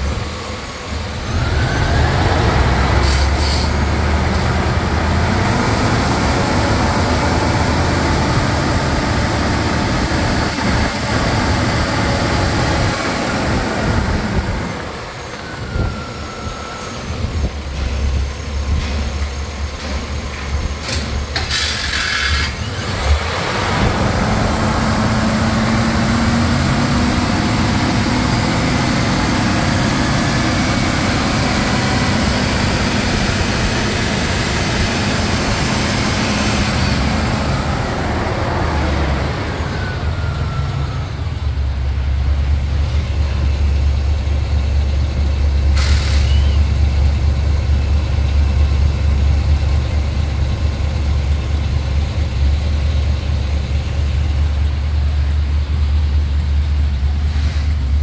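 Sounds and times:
car engine idling: 17.0s - 58.0s
rushing hiss: 20.9s - 22.7s, 45.8s - 46.6s.

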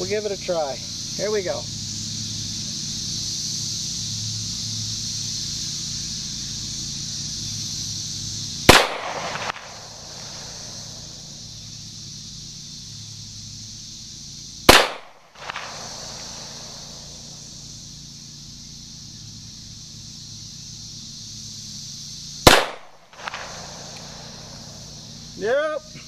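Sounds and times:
pistol shots with echo: 8.7s - 9.8s, 14.7s - 15.7s, 22.5s - 23.4s.

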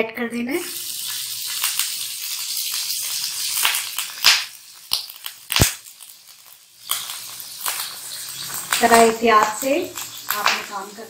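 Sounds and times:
butter sizzling in hot oil: 0.4s - 11.0s.

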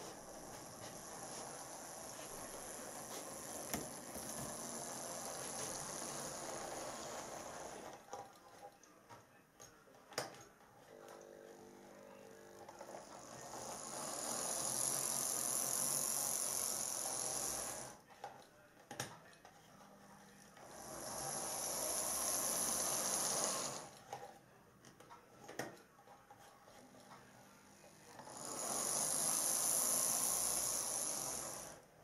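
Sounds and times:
model train motor whirring: 0.0s - 8.0s, 11.5s - 18.0s, 20.6s - 24.0s, 28.0s - 31.9s.

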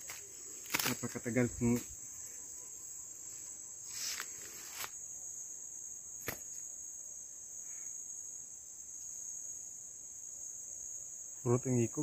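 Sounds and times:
brief rustle: 0.0s - 1.1s, 3.9s - 5.0s
forest insects droning: 0.0s - 12.0s.

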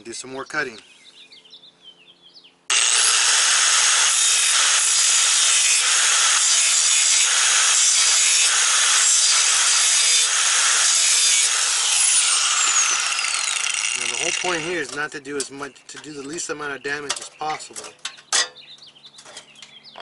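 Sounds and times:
angle grinder cutting steel: 2.7s - 15.0s.

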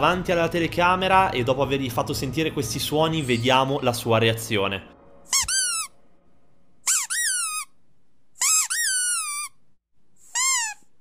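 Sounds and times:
high-pitched squeaks: 5.3s - 6.0s, 6.8s - 7.8s, 8.4s - 9.6s, 10.3s - 11.0s.

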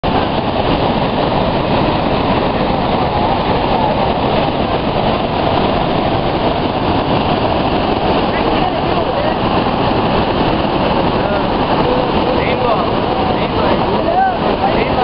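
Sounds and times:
floodwater rushing through spillway: 0.0s - 15.0s.

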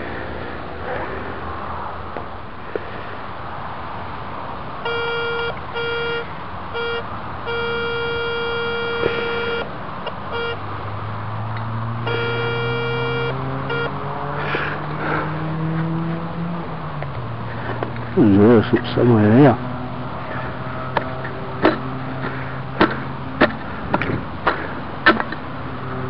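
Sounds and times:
metal detector beeping: 4.9s - 6.2s, 6.8s - 9.6s, 10.3s - 10.6s, 12.1s - 14.0s.

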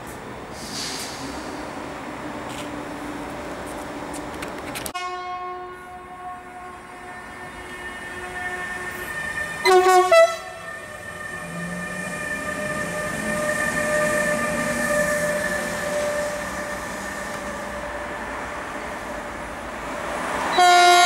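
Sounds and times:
electric locomotive horn blasts: 5.0s - 10.7s, 20.5s - 21.0s
electric locomotive passing whine: 5.8s - 21.0s.

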